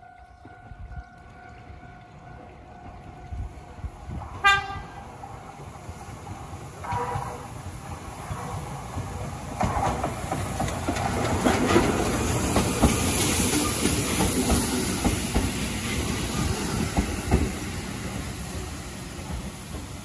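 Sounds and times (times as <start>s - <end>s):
electric train rumble: 0.0s - 20.0s
wheels clacking over rail joints: 5.3s - 20.0s.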